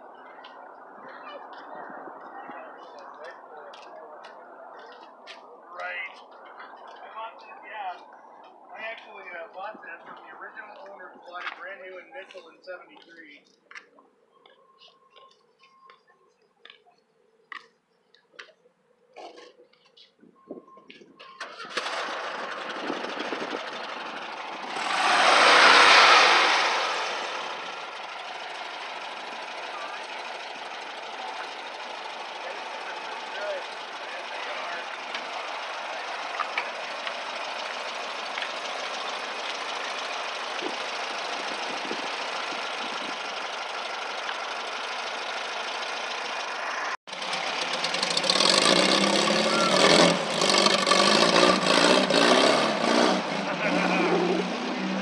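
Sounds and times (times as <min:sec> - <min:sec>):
car engine starting and idling: 0:21.2 - 0:55.0.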